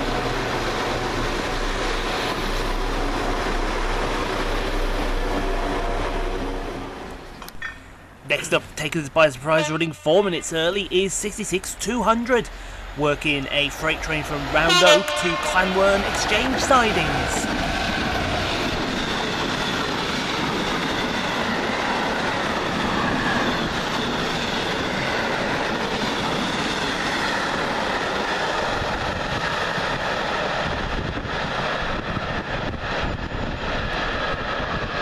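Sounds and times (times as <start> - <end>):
train wheels rumbling on rail: 0.0 - 35.0
faint wheel ringing: 7.4 - 8.5.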